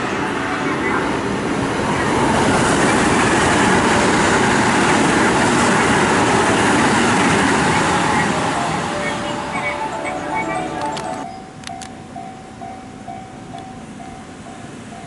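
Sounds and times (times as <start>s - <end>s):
train passing: 0.0s - 15.0s.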